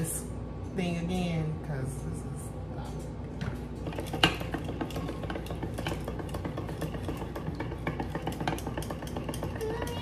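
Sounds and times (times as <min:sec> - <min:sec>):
plunger whisk rattling in bowl: 0:03.8 - 0:10.0.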